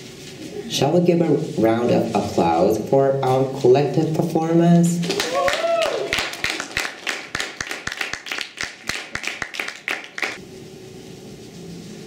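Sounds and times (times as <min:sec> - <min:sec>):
small group applauding: 0:05.0 - 0:10.4.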